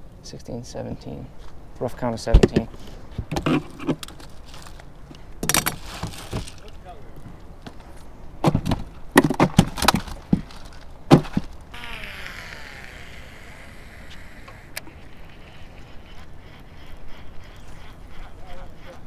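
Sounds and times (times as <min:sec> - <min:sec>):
fishing reel spool whirring: 0:11.7 - 0:19.0.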